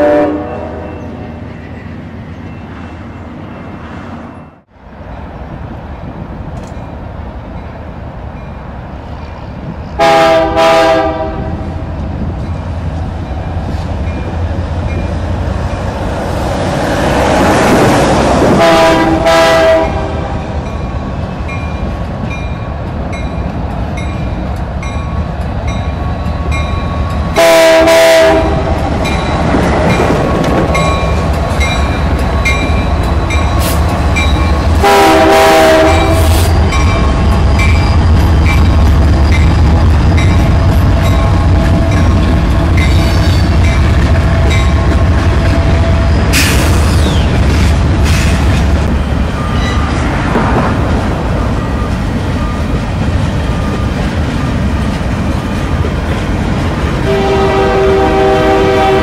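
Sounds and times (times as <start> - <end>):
train air horn blasts: 0.0 - 1.1, 10.0 - 11.9, 18.5 - 20.4, 27.3 - 28.8, 34.7 - 36.7, 57.0 - 59.0
freight train passing: 0.0 - 59.0.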